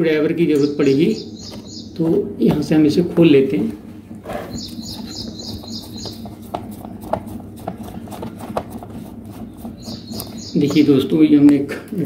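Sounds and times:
small bird chirping: 0.5s - 2.0s, 4.5s - 7.0s, 9.5s - 11.0s.

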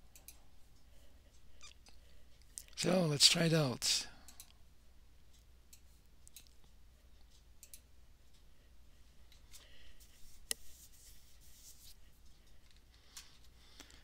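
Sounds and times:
low steady hum: 0.0s - 14.0s
computer mouse clicks: 7.6s - 7.9s.

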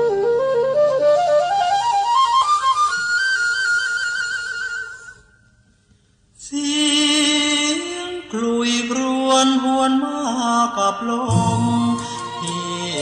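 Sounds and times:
flute-like wind instrument melody: 0.0s - 5.3s, 11.3s - 13.0s.

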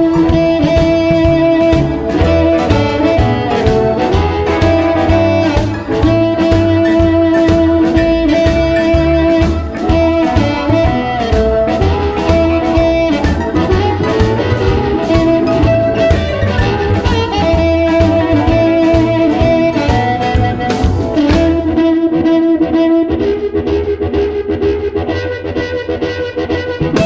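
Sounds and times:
steady drum beat: 0.0s - 22.0s
bass line: 0.0s - 27.0s
electric guitar: 0.0s - 27.0s
harmonica: 0.0s - 27.0s.

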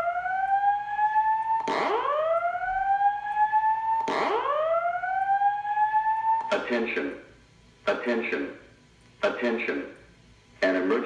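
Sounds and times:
whooping evacuation alarm tone: 0.0s - 6.8s.

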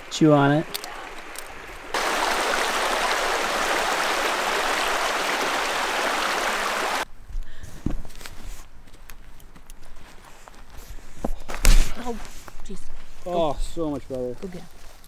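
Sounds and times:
creek water rushing: 0.0s - 7.0s.

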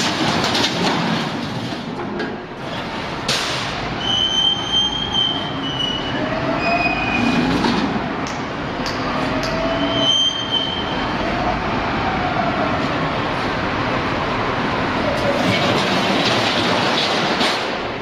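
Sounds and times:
metal-on-metal squeals: 4.0s - 7.6s, 9.6s - 11.0s.

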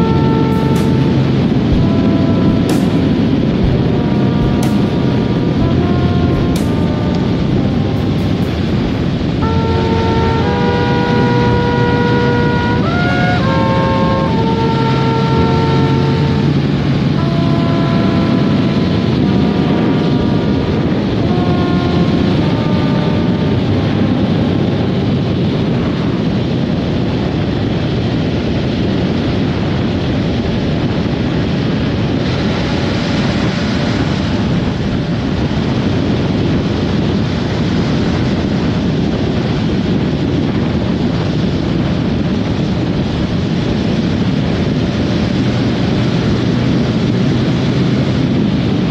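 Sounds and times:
motorcycle engine: 0.0s - 24.8s
road noise: 0.0s - 48.9s
wind rushing on microphone: 0.0s - 48.9s.

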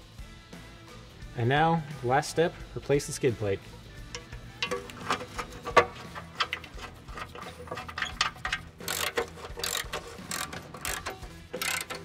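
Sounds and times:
ratchet wrench clicking: 4.1s - 5.5s, 6.2s - 12.0s.

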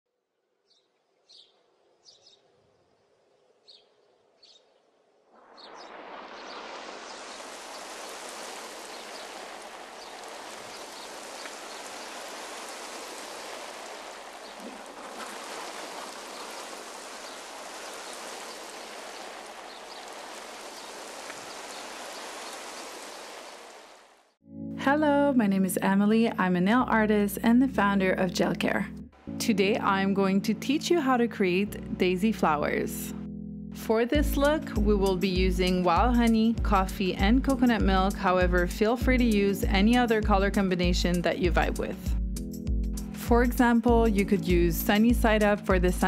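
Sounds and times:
stream of falling water: 5.4s - 24.4s.

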